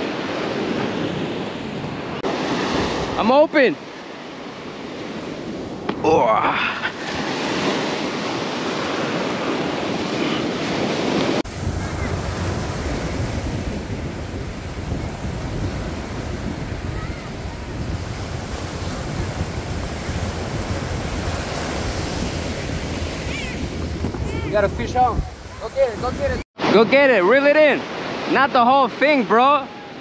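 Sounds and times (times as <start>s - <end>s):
ocean surf breaking: 0.0s - 30.0s
wind buffeting microphone: 7.1s - 26.4s.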